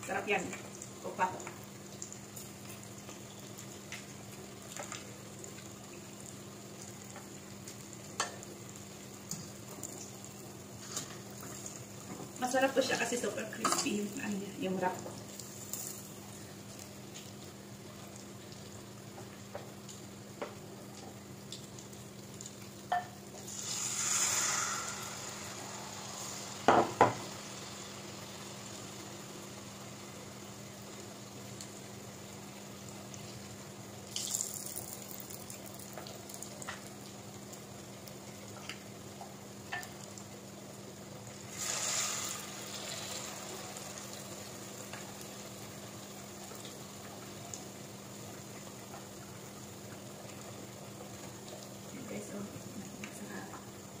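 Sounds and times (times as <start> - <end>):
eggs deep-frying in oil: 0.0 - 54.0.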